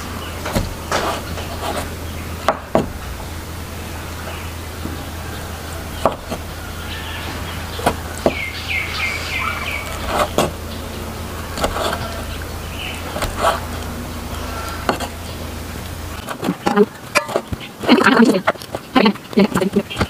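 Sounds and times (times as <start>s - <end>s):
cleaver chopping on wooden board: 0.5s - 3.0s, 6.0s - 6.4s, 11.6s - 12.2s, 13.1s - 13.6s.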